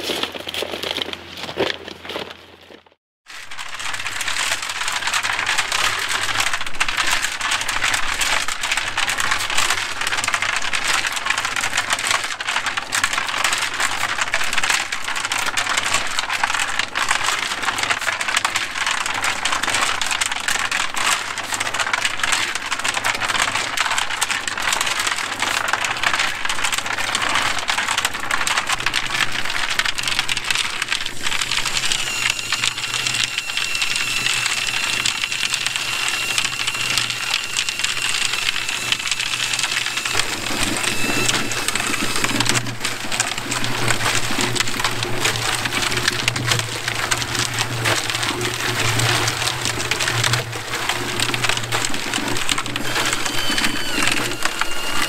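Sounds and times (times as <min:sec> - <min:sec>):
gravel rattling in mixer drum: 0:00.0 - 0:55.0
mixer motor hum: 0:30.9 - 0:55.0
hose spraying water: 0:31.2 - 0:44.2, 0:50.6 - 0:55.0
high whistle: 0:31.6 - 0:42.5, 0:52.8 - 0:55.0.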